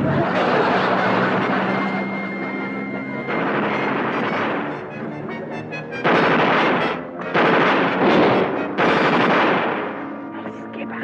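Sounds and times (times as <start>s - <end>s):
dramatic background music: 0.4s - 11.0s
gunfire volleys: 3.3s - 5.1s, 6.0s - 10.2s
fast gunfire rattle: 6.0s - 9.9s.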